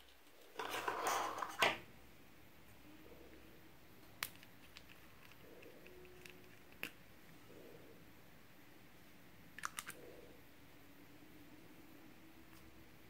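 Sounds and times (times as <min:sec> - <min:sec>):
plastic rustling and scraping: 0:00.0 - 0:01.8.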